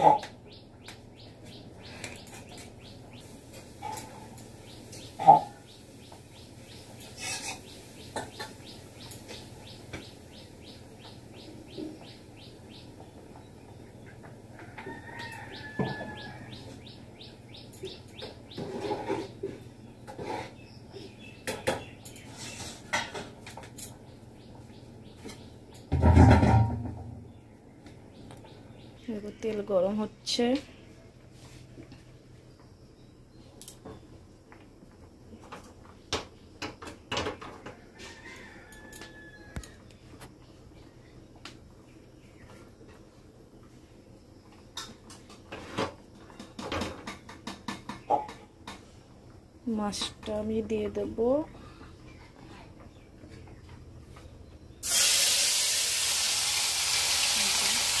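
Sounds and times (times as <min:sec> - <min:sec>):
metal pots and pans clinking: 0:07.2 - 0:08.6, 0:25.9 - 0:27.0.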